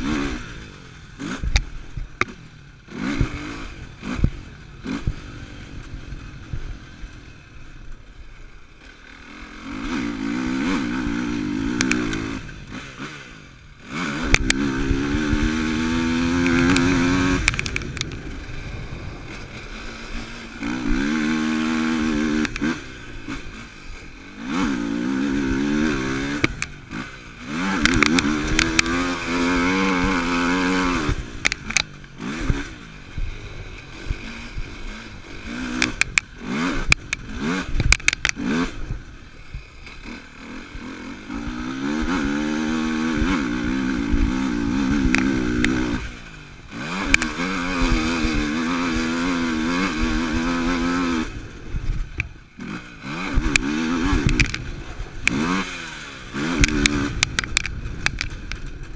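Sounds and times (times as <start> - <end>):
quad engine revving: 0.0 - 58.9
knocks and clatter over bumps: 14.0 - 40.2, 46.8 - 55.6, 56.4 - 58.9.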